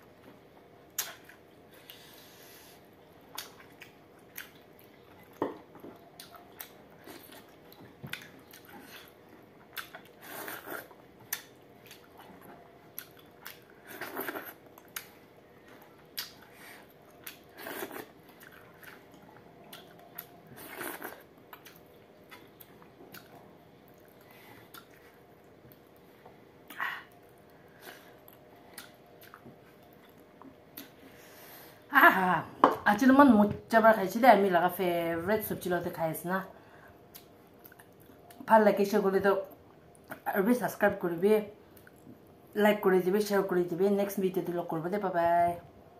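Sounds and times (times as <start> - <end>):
wet chewing and mouth clicks: 0.9 - 2.1, 3.1 - 26.0, 26.6 - 31.0, 37.1 - 38.4.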